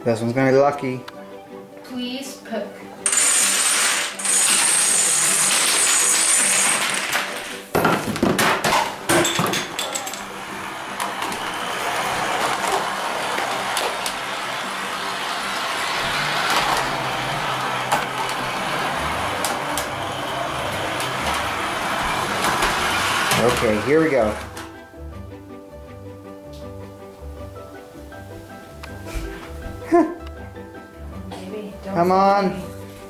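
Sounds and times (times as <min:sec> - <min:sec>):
dominoes clattering: 0:03.0 - 0:24.6
model train rumbling on track: 0:10.2 - 0:24.5.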